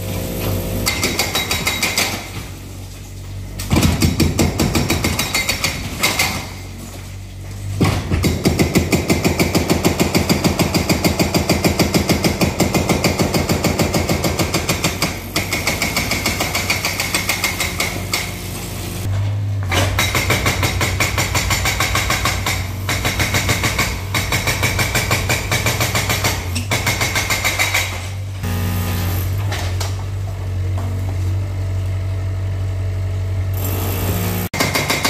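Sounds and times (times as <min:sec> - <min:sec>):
excavator engine hum: 0:00.0 - 0:01.4, 0:28.2 - 0:34.5
hydraulic breaker hammering concrete: 0:00.1 - 0:02.5, 0:03.7 - 0:06.7, 0:07.8 - 0:19.0, 0:19.7 - 0:29.8, 0:33.6 - 0:35.0.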